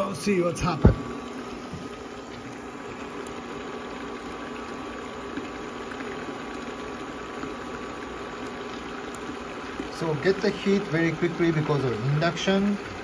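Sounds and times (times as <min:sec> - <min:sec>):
faint steady hum: 0:00.0 - 0:13.0
water boiling in a pan: 0:00.0 - 0:13.0.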